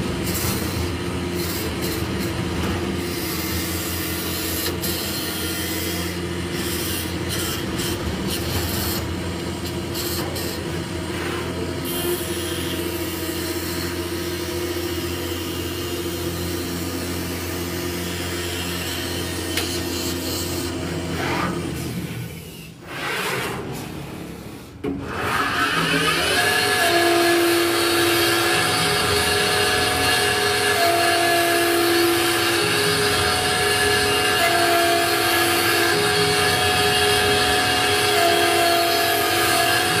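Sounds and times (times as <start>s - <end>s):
lathe motors humming: 24.8s - 40.0s
router bit whine: 24.8s - 40.0s.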